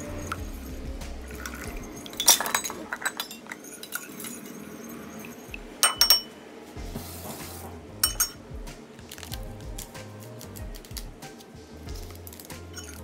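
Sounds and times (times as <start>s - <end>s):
spoon clinking glass bowl: 1.3s - 6.3s, 8.0s - 8.4s.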